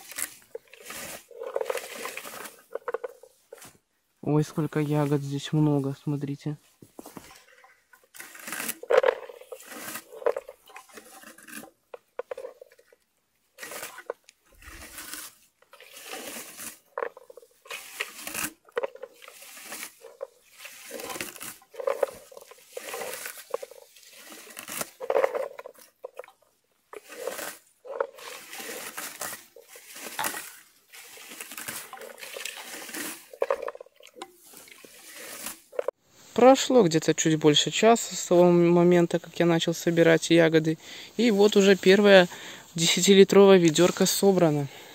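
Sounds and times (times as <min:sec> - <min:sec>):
berry comb raking bushes: 0:00.0 - 0:03.8, 0:06.6 - 0:36.0.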